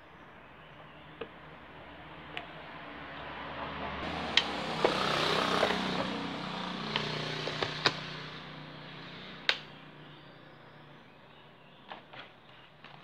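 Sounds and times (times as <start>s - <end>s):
motor hum: 4.0s - 10.0s.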